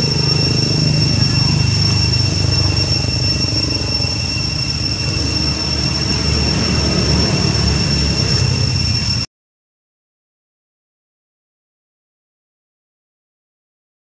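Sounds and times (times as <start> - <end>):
high-pitched drone: 0.0 - 9.3
low rumble: 0.0 - 9.3.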